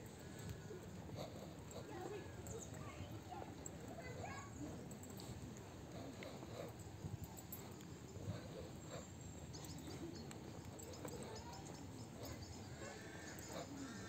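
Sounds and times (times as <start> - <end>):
distant voices: 0.0 - 14.0
low background murmur: 0.0 - 14.0
faint bird chirps: 9.0 - 14.0.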